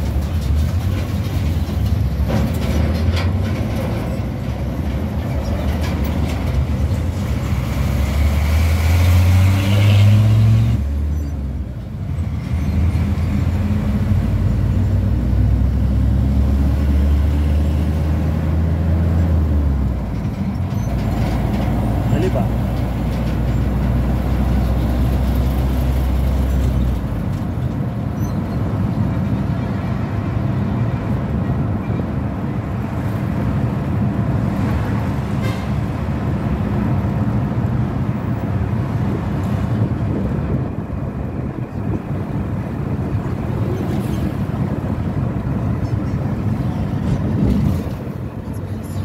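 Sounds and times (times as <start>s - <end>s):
vehicle engine and road rumble: 0.0s - 49.0s.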